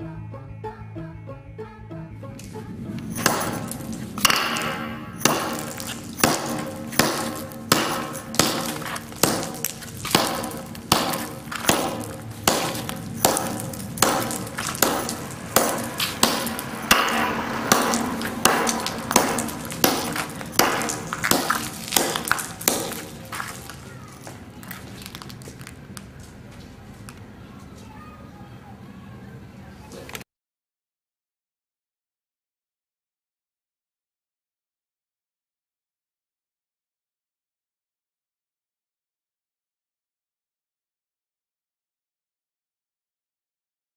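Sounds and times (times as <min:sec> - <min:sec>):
hammer smashing hard candy: 0:03.2 - 0:25.7.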